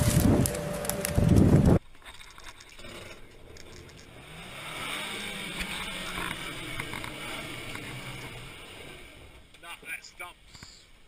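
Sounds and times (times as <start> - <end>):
engine running at low revs: 0.0 - 1.8, 3.3 - 9.5.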